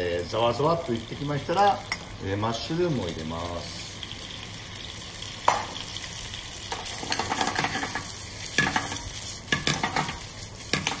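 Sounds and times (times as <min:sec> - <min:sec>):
bacon and mushrooms sizzling: 0:00.0 - 0:11.0
metal spoon scraping a pan: 0:06.9 - 0:11.0.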